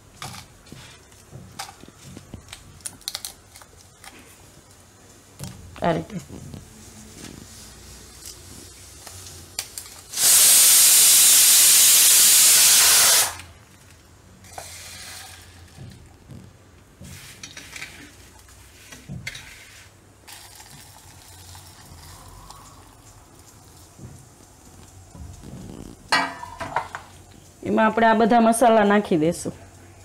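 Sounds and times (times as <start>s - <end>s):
pressure cooker whistle hissing: 10.1s - 13.4s.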